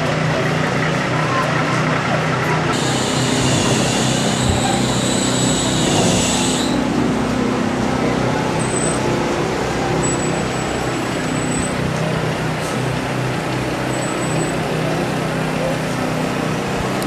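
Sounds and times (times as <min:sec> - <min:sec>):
vehicle engine running: 0:00.0 - 0:17.0
high hiss: 0:02.8 - 0:06.9.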